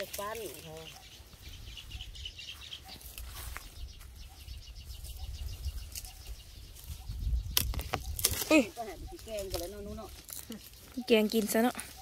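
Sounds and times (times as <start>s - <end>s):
bush leaves rustling and snapping: 0.0s - 1.0s, 5.0s - 12.0s
wind rumble on microphone: 3.1s - 10.1s.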